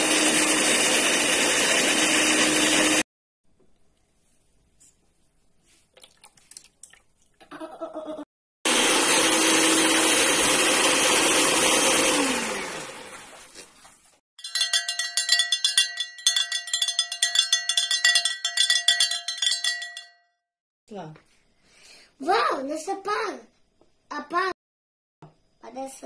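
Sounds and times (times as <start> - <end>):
electric hand mixer beating: 0.0 - 3.0, 8.7 - 13.2
fast rhythmic chiming sound effect: 14.4 - 20.3.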